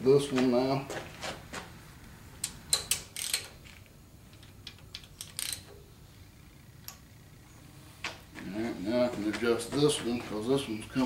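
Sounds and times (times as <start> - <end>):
ratchet clicking: 2.4 - 5.8.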